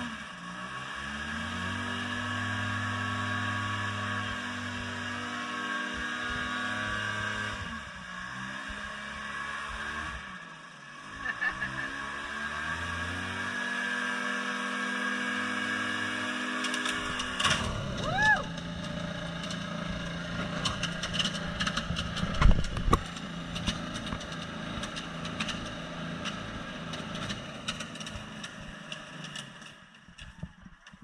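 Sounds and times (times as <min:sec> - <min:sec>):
hovercraft engine and fan running: 0:00.0 - 0:31.0
engine clattering and knocks: 0:16.6 - 0:31.0.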